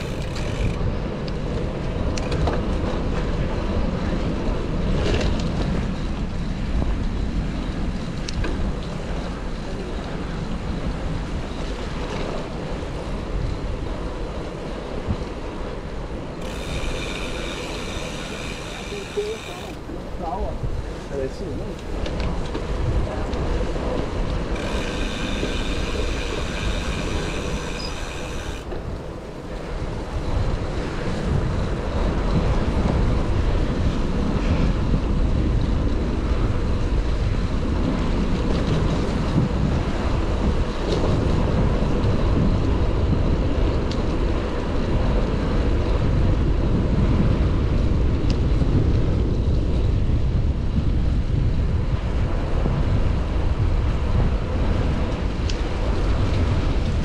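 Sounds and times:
bicycle road rumble: 0.0s - 57.0s
wind buffeting microphone: 0.0s - 57.0s
high multi-tone squeal: 24.7s - 28.6s.

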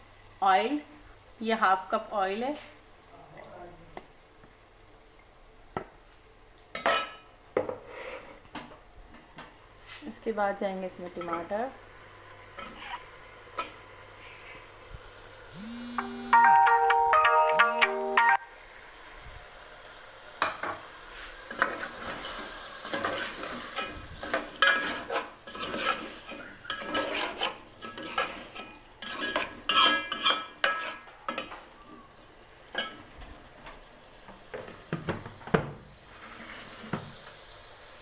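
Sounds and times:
frying sizzle: 0.0s - 38.0s
metal spoon scraping pot: 22.9s - 31.5s.

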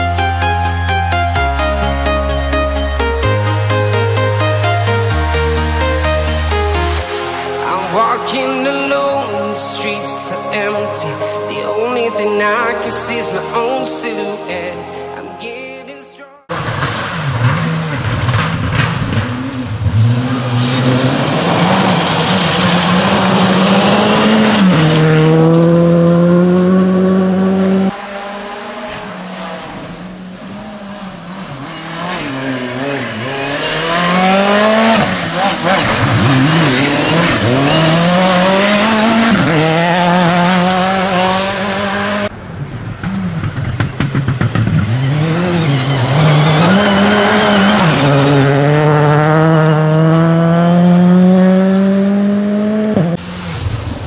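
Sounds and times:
rally car engines revving: 16.5s - 54.0s.

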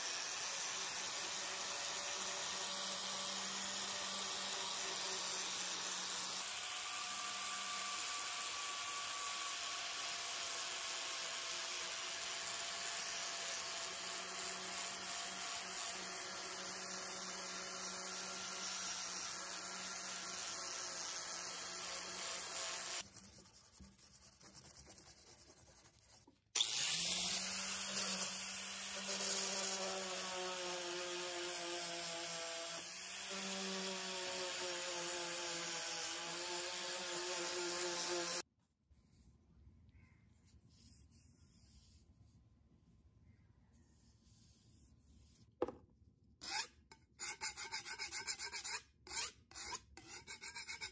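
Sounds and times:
power tool sanding: 0.0s - 24.1s, 26.1s - 38.4s.

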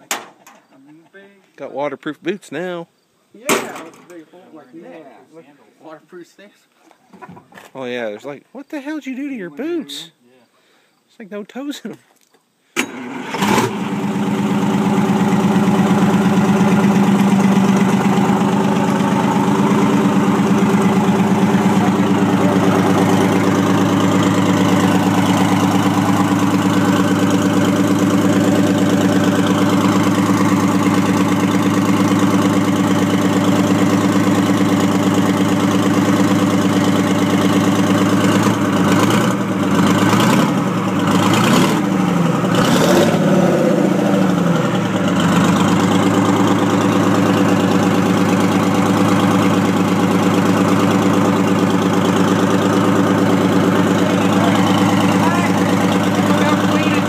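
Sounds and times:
diesel truck engine idling: 13.7s - 57.0s.

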